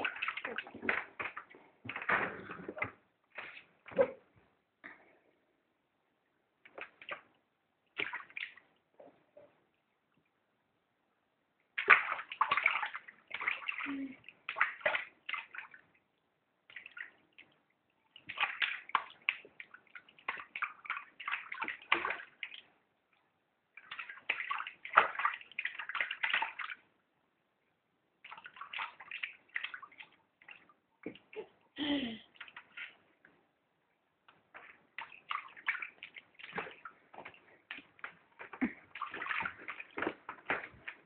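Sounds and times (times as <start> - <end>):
bathwater splashing: 0.0 - 4.3, 6.6 - 9.4, 11.7 - 22.9, 23.7 - 27.0, 28.1 - 31.6, 32.3 - 33.2, 34.2 - 41.0.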